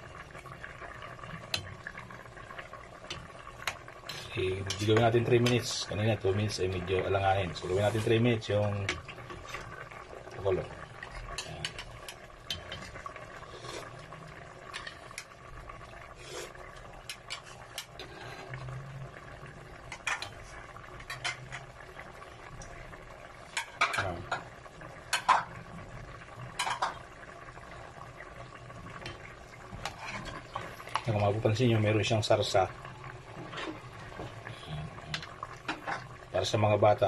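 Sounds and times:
wooden spatula scraping a pot: 0:07.5 - 0:08.4, 0:29.7 - 0:31.1.

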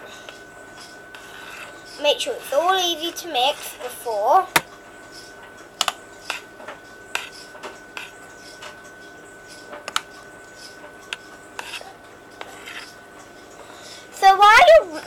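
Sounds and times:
spoon scraping saucepan: 0:10.6 - 0:13.0.

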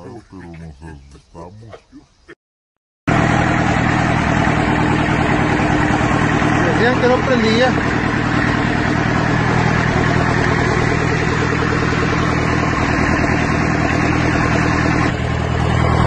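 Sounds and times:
tractor engine running: 0:03.1 - 0:16.0.

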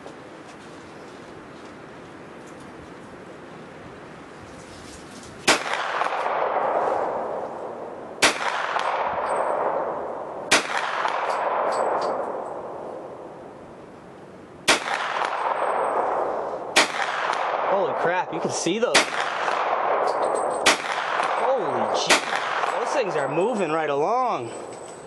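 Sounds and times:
gunshots with echo: 0:05.5 - 0:12.7, 0:14.7 - 0:23.9.

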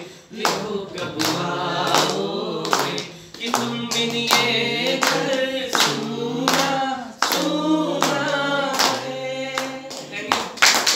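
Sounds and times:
hands clapping a steady beat: 0:00.0 - 0:10.9.

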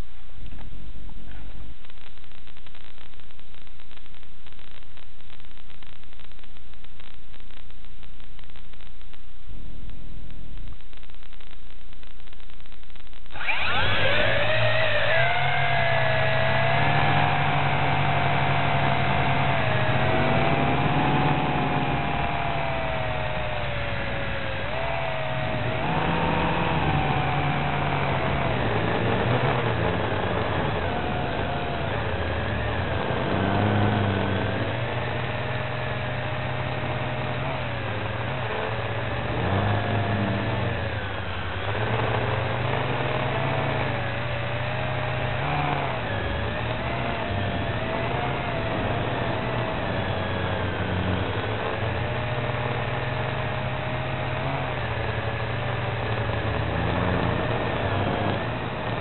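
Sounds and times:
low hum and hiss: 0:00.0 - 0:41.8
quadcopter motors whining: 0:13.3 - 0:59.0.

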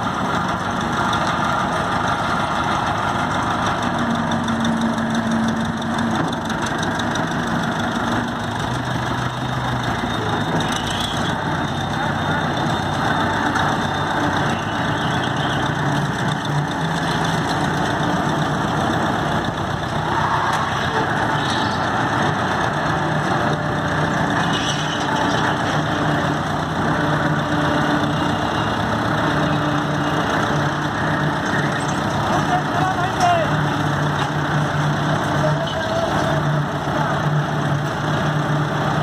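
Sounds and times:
road roller engine running: 0:00.0 - 0:39.0.

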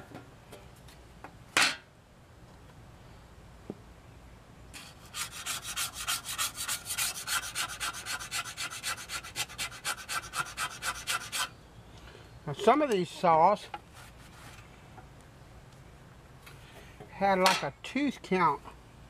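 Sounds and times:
razor blade scraping rust off steel: 0:04.8 - 0:11.5.

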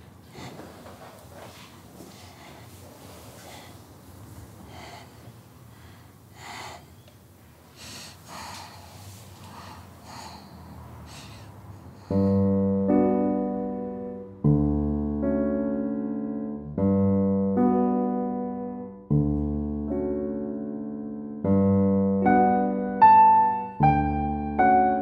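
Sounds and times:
soft breathing: 0:00.0 - 0:12.8
loud piano chords: 0:09.5 - 0:25.0.

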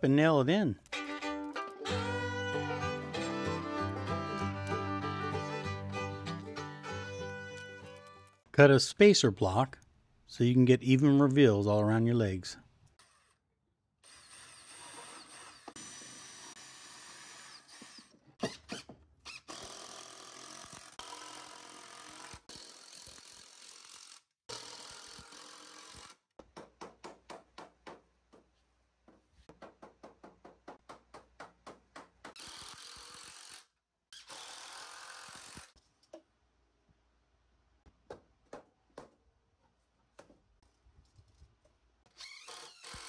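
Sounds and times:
cordless drill driving screws: 0:14.0 - 0:26.2, 0:32.4 - 0:35.7, 0:42.2 - 0:43.0.

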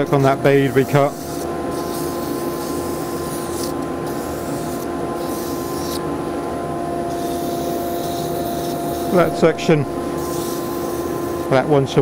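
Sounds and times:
sandpaper rubbing on spinning wood: 0:00.0 - 0:06.0, 0:07.1 - 0:09.3, 0:10.2 - 0:11.5
dust extractor running: 0:04.9 - 0:11.6.

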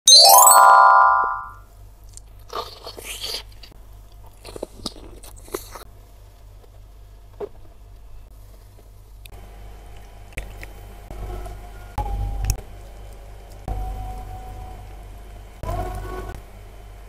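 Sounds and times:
biting and chewing: 0:02.4 - 0:05.9.

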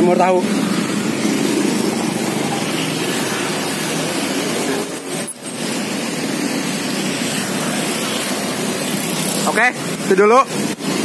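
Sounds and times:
roadside traffic noise: 0:00.0 - 0:11.0.

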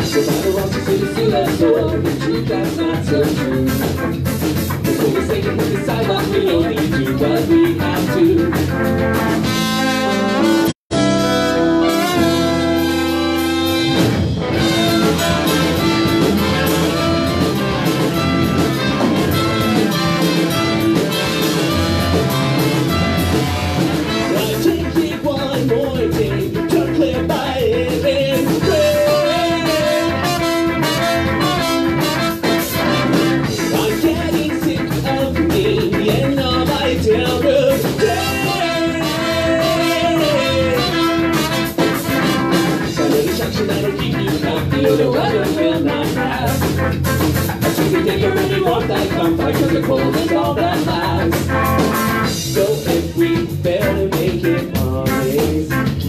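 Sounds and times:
bass guitar: 0:00.0 - 0:56.0
electric guitar: 0:00.0 - 0:56.0
horn section with trumpet: 0:09.1 - 0:24.8, 0:28.7 - 0:33.6, 0:38.2 - 0:42.9, 0:51.3 - 0:52.4.

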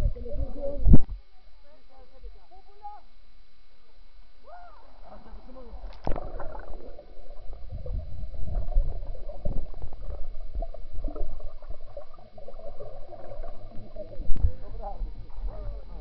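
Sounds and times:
underwater rumbling and gurgling: 0:04.9 - 0:16.0.

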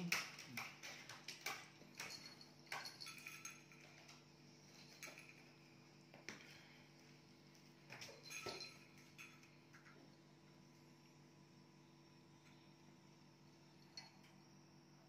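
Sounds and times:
faint clicks and taps: 0:00.0 - 0:05.3.

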